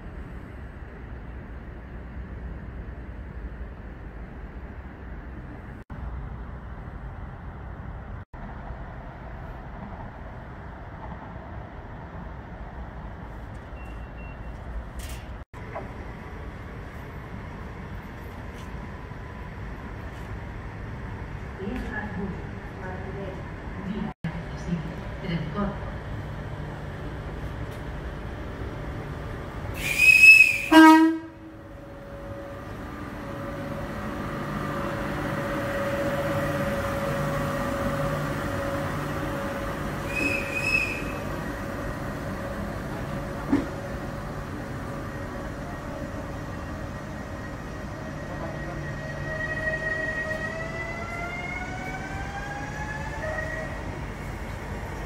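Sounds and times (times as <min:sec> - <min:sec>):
train horn blasts: 0:29.8 - 0:31.6, 0:40.0 - 0:41.3.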